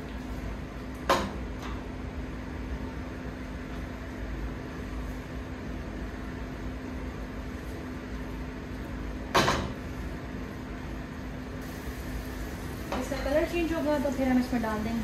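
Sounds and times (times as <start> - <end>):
steady low hum: 0.0 - 15.0
onions frying in oil: 11.6 - 15.0.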